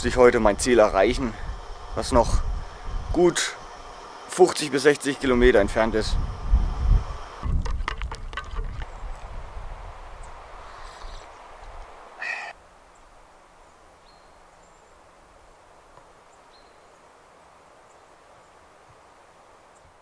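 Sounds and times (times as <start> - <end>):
loud bird call: 12.2 - 12.6.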